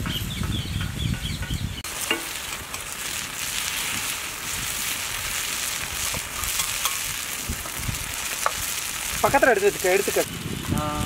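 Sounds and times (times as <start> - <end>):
bird-like chirps: 0.0 - 1.9
eggs sizzling on a griddle: 1.8 - 11.0.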